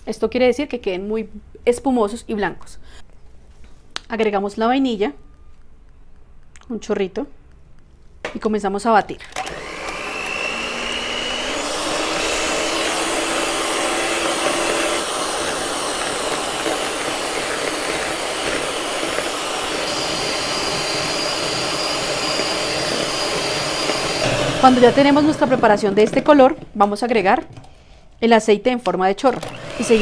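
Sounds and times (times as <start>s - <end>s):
electric hand mixer whining: 9.3s - 26.7s, 29.3s - 30.0s
higher mixer whine: 9.3s - 26.7s, 29.4s - 30.0s.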